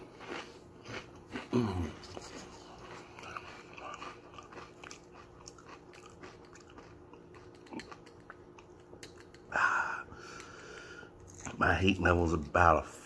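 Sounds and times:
person chewing crunchy chips: 0.0 - 9.5.

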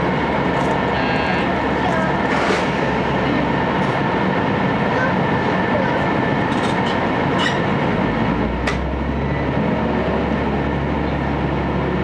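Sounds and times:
low engine drone: 0.0 - 12.0
railcar running noise: 0.0 - 12.0.

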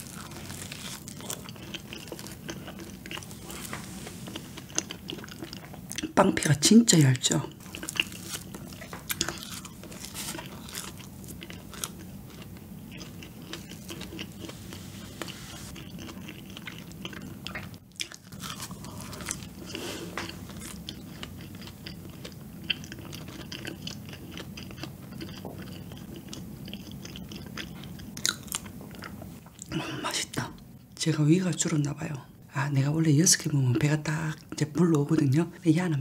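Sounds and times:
chewing and biting donut: 0.0 - 6.2, 7.6 - 29.8.

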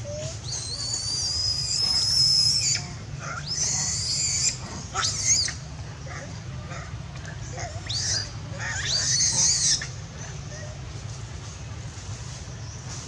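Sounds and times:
monkey distress cries: 0.0 - 6.2, 7.5 - 10.8.

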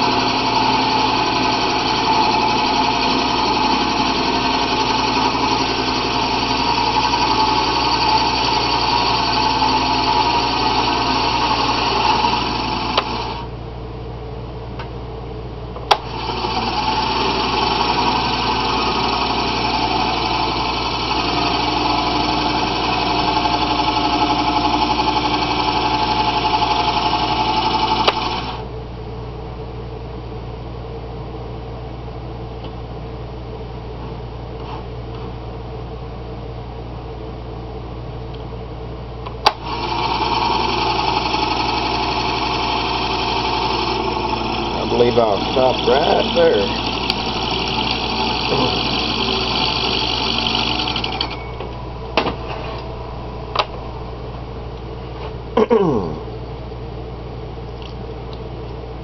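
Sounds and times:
wood lathe whining: 0.0 - 13.5, 15.9 - 28.6, 39.5 - 51.8.

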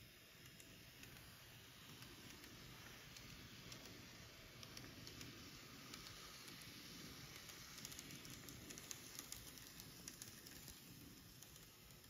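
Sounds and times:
model railcar running hiss: 0.0 - 12.0.

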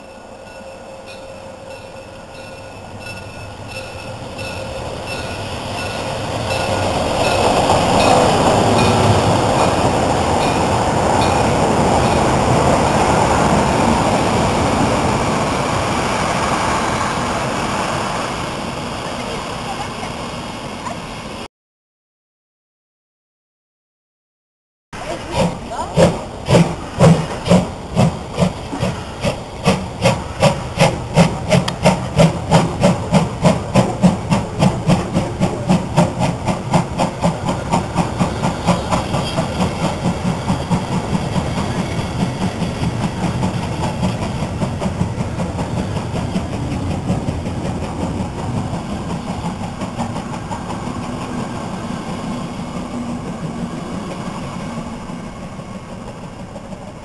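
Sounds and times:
steam locomotive chuffing: 0.0 - 21.4, 25.0 - 57.0
train coaches rolling past: 0.0 - 21.5, 25.0 - 57.0.

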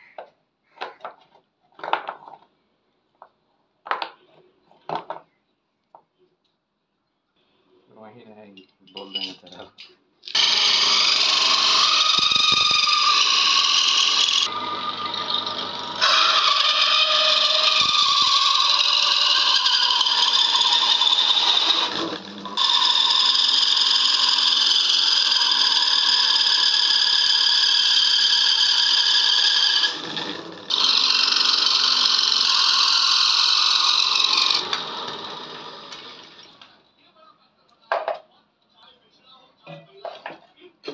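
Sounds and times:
hole saw screeching in wood: 10.3 - 36.4.

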